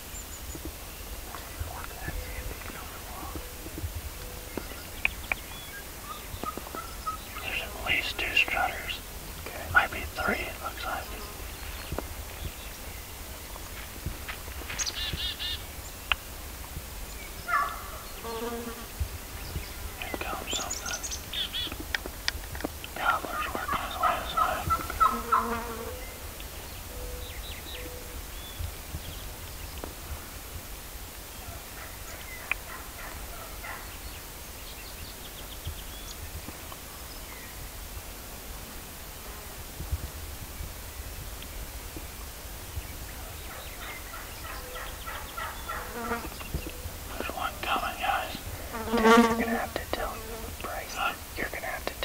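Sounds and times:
songbird chirping: 0:00.0 - 0:30.4, 0:31.1 - 0:37.8, 0:40.5 - 0:52.0
insect buzzing past: 0:17.8 - 0:21.3, 0:23.4 - 0:26.2, 0:45.7 - 0:51.4
turkey gobbling: 0:24.0 - 0:25.4.

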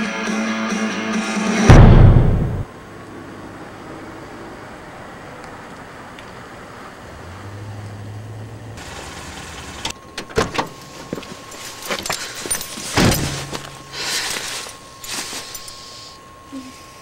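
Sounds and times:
car engine humming: 0:02.6 - 0:16.7
short rustle: 0:10.8 - 0:16.0.

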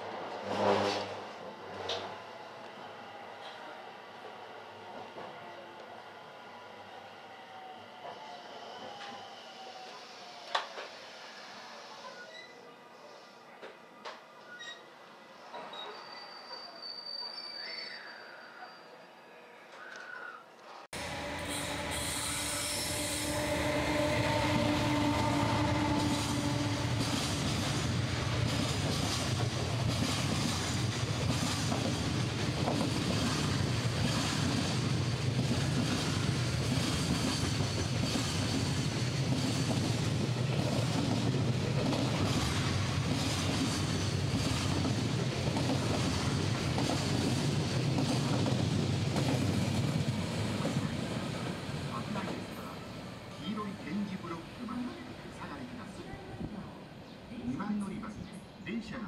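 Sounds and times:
locomotive hum: 0:21.0 - 0:55.2
train wheels clattering on rails: 0:21.1 - 0:51.5.

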